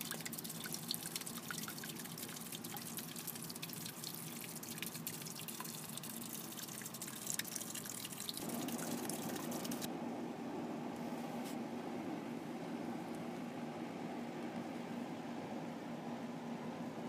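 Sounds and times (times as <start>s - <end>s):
fountain water splashing: 0.0s - 9.9s
low rushing water: 0.0s - 11.0s.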